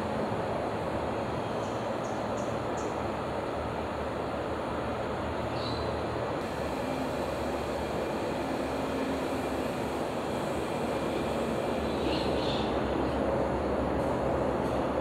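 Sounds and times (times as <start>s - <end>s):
outdoor background rumble: 0.0s - 15.0s.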